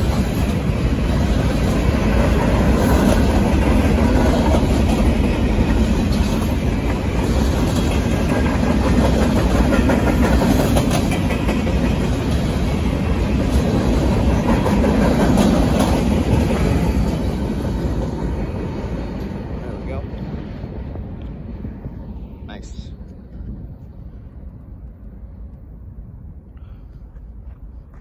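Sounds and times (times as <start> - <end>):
freight train wheels rumbling on rails: 0.0 - 28.0.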